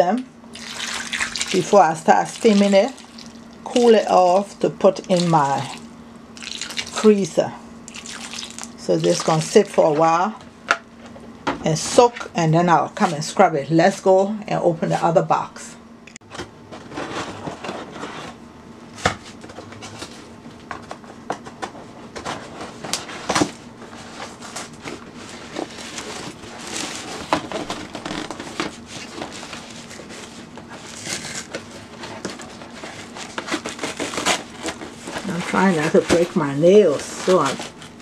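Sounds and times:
steady hum: 0.0 - 38.0
cardboard and tape tearing: 25.4 - 38.0.

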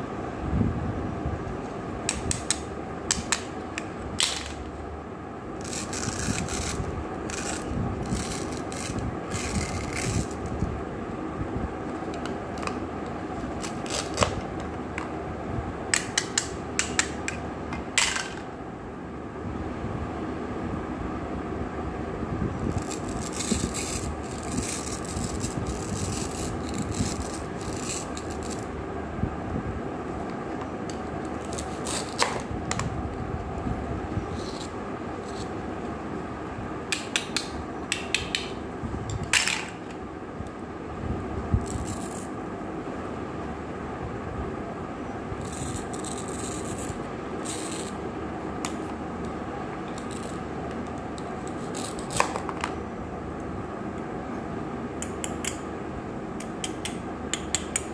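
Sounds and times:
steady background noise: 0.0 - 57.9
toy knife scraping plastic: 5.6 - 10.5, 13.5 - 14.4, 22.7 - 28.6, 31.4 - 32.4.

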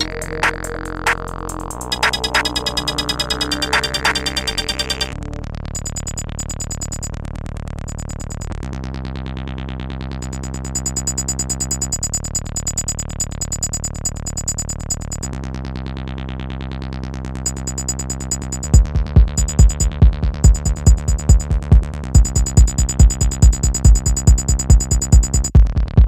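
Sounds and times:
fast ticking pulse: 0.0 - 5.1, 5.7 - 7.2, 7.8 - 8.6, 10.2 - 15.4, 17.4 - 26.0
droning synthesizer chord: 0.0 - 5.7.

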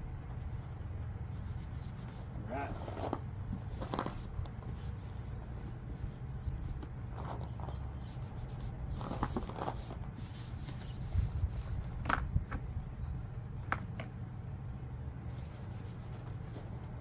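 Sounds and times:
steady low rumble: 0.0 - 17.0
cloth rubbing on plastic case: 1.4 - 11.9.

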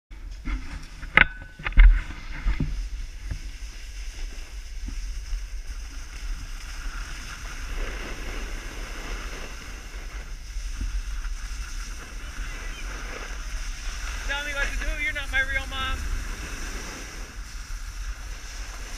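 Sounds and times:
snowboard scraping on snow: 1.9 - 18.9
wind buffeting microphone: 4.5 - 18.9.

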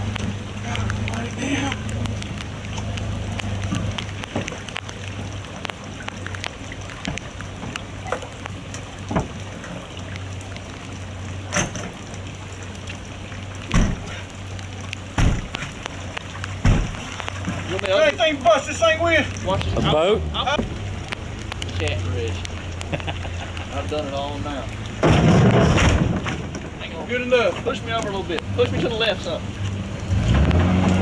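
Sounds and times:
water sloshing and splashing: 0.0 - 31.0
knocks and thumps on door: 15.2 - 15.5.

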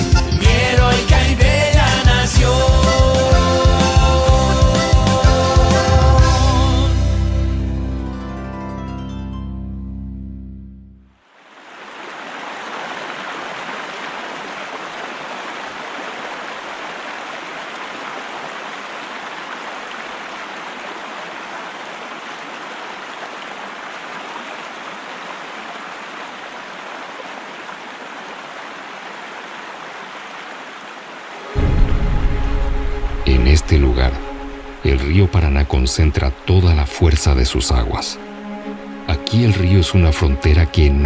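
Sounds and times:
film soundtrack over speakers: 0.0 - 10.5, 31.5 - 41.0
rushing river water: 11.2 - 41.0.

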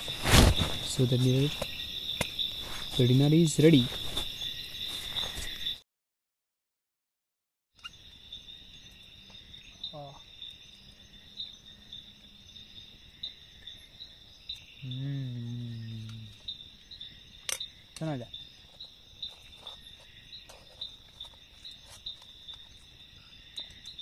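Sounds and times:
crickets chirping: 0.0 - 5.8, 7.8 - 24.0
man's low vocal sound: 14.8 - 16.4.

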